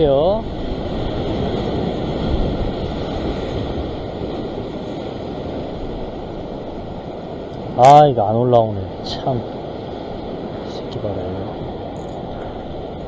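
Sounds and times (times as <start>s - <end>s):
ocean surf breaking on rocks: 0.0s - 13.0s.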